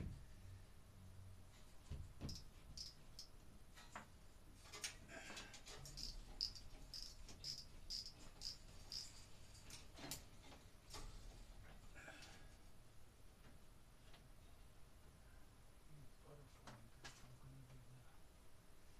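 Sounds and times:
sharp knocks and clicks: 1.8s - 5.0s, 5.6s - 11.2s.

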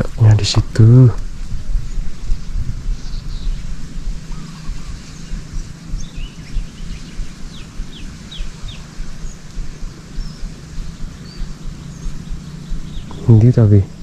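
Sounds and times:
small birds chirping: 0.0s - 14.0s
steady low rumble: 0.0s - 14.0s.

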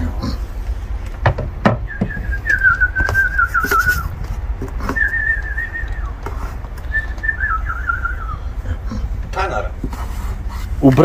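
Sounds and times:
person whistling: 1.8s - 4.2s, 4.8s - 6.2s, 6.9s - 8.5s.

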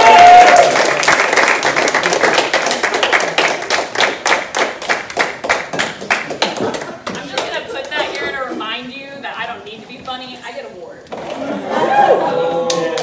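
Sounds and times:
small audience clapping: 0.0s - 8.3s, 12.4s - 13.0s.

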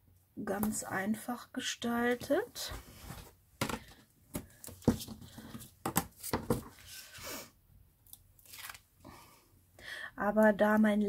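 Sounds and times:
paper rustling: 8.4s - 8.8s.

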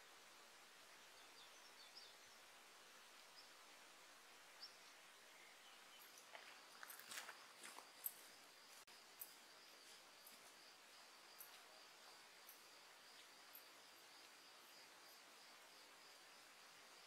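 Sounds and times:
faint outdoor hiss: 0.0s - 17.0s
faint high bird chirps: 4.6s - 7.1s.

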